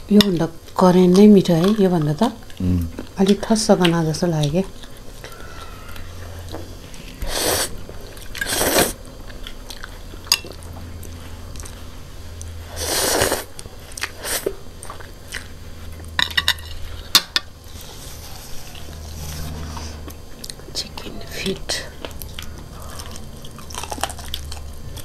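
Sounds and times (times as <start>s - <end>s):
chewing: 1.1s - 25.0s
slurping noodles: 8.4s - 9.0s, 12.7s - 14.5s.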